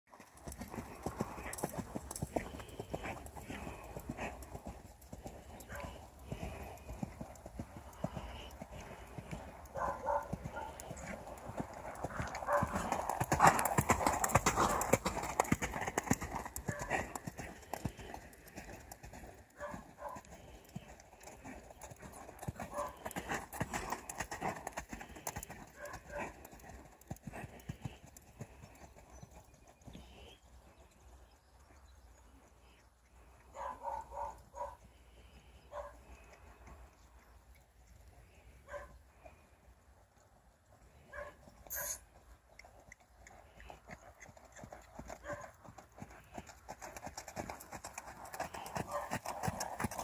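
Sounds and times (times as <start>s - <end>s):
hoofbeats on sand: 0.1s - 18.7s, 19.4s - 29.3s.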